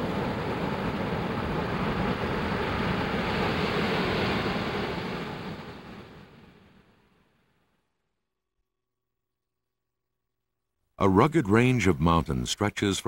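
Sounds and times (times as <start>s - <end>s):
steady rushing noise: 0.0s - 6.8s.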